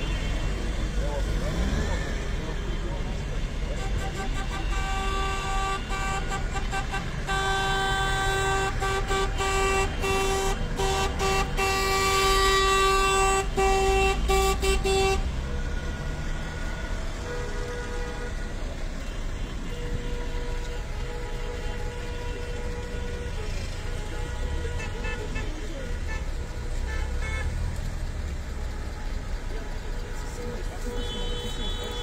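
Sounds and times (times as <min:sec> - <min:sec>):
car horns honking: 0:00.0 - 0:32.0
rumble of passing cars: 0:00.0 - 0:32.0
higher-pitched horn: 0:03.7 - 0:15.8.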